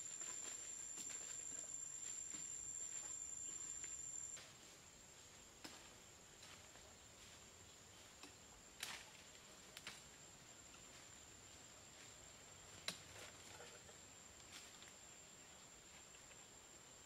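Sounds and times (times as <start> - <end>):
high-pitched insect whine: 0.0 - 4.5.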